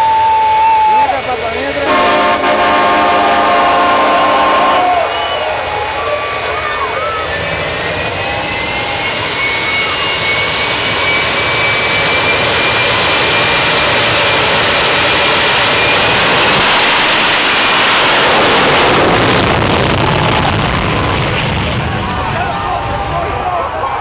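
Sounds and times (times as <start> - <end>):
high turbine whine: 0.0 - 24.0
jet engine roaring: 0.0 - 24.0.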